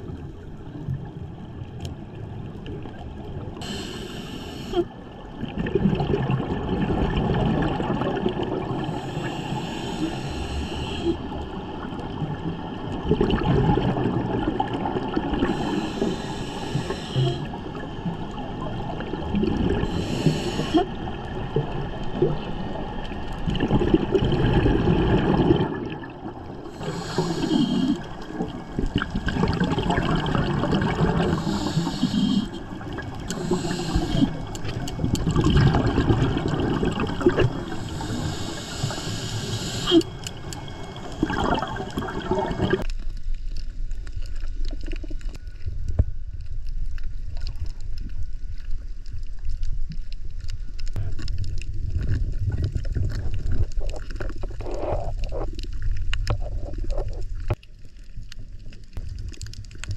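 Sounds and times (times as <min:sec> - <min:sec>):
exhaled bubbles rumbling: 0:00.0 - 0:03.7, 0:04.9 - 0:10.2, 0:11.0 - 0:59.9
hissing regulator inhalations: 0:03.6 - 0:04.9, 0:08.8 - 0:11.2, 0:15.4 - 0:17.6, 0:19.8 - 0:20.9, 0:26.7 - 0:28.3, 0:31.1 - 0:35.1, 0:37.2 - 0:42.8.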